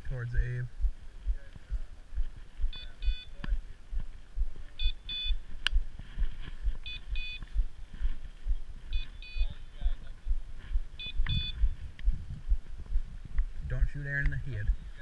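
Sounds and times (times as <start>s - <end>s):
electronic collar beeps: 2.7s - 3.4s, 4.8s - 5.4s, 6.8s - 7.6s, 8.9s - 9.9s, 11.0s - 11.8s
footsteps through dry grass: 3.5s - 13.6s.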